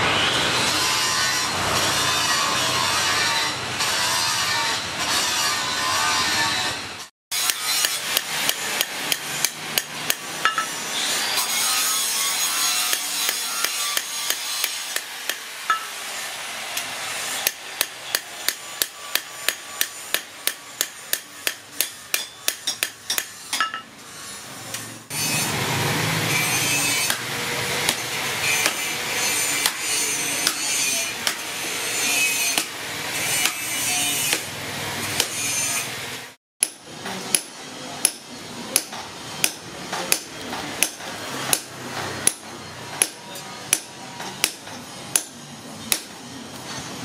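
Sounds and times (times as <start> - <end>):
hammer striking steel blade: 7.3 - 10.9, 12.8 - 16.1, 16.8 - 24.0, 26.7 - 34.5, 36.6 - 46.3.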